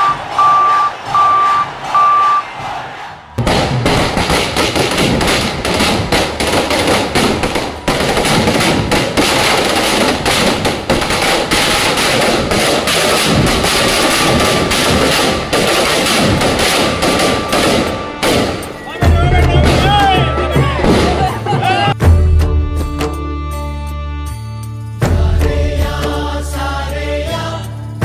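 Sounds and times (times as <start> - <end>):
firecrackers cracking rapidly: 3.4 - 18.8.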